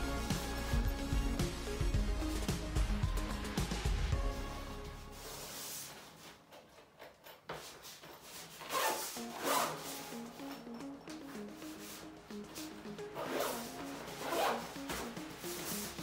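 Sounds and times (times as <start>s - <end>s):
quiet background music: 0.0s - 16.0s
zipper being pulled: 8.5s - 10.6s, 13.1s - 16.0s.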